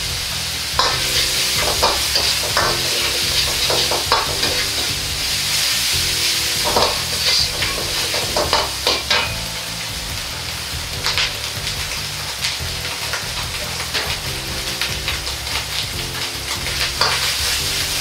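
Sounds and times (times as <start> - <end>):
low rumble of burner: 0.0 - 18.0
meat sizzling in a wok: 0.0 - 18.0
metal ladle scraping a wok: 0.8 - 9.8.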